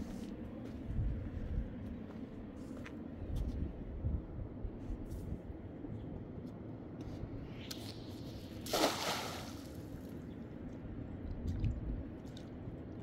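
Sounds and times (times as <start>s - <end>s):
water splashing: 8.6s - 9.8s.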